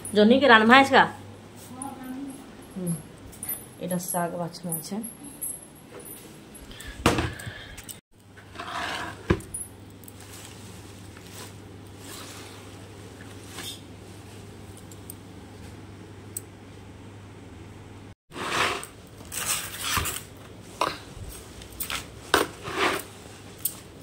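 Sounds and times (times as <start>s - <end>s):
glass bangles clinking: 1.8s - 7.0s
leafy greens rustling in plastic basin: 10.2s - 14.4s.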